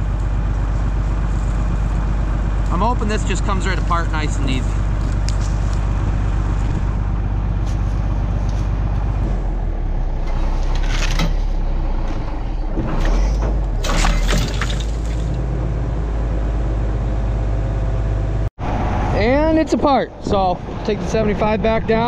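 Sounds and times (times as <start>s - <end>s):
tractor diesel engine under load: 0.0s - 22.0s
metal cracking and creaking: 10.2s - 15.4s.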